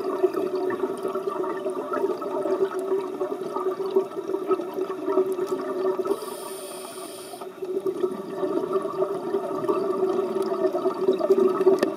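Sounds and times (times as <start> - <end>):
exhaled bubbles gurgling underwater: 0.0 - 11.9
hissing inhale through regulator: 6.1 - 7.6.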